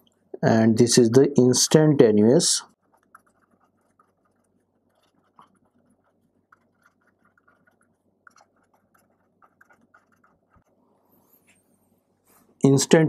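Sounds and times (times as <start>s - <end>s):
pen writing on paper: 2.7s - 10.7s.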